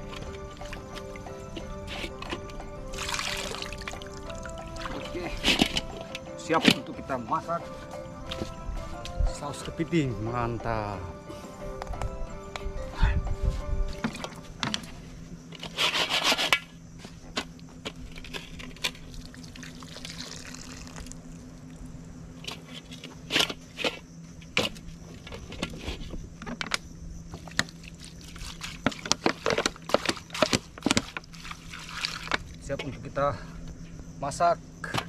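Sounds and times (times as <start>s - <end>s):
water poured from plastic bottle: 2.9s - 5.1s, 19.1s - 21.2s, 27.8s - 32.5s.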